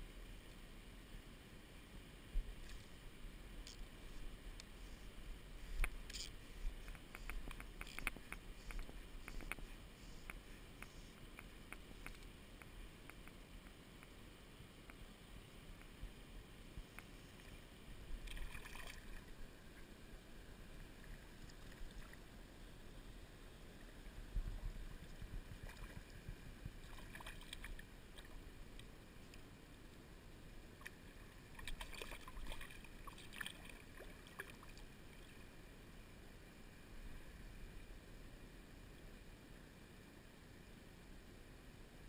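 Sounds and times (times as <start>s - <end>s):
faint low rumble: 0.0s - 42.0s.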